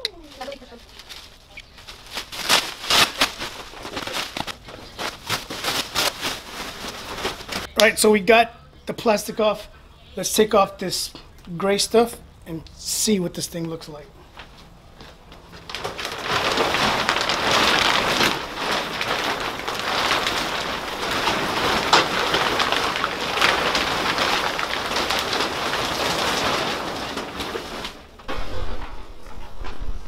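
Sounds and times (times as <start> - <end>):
foil crinkling and rustling: 0.0 - 7.7, 14.4 - 28.4.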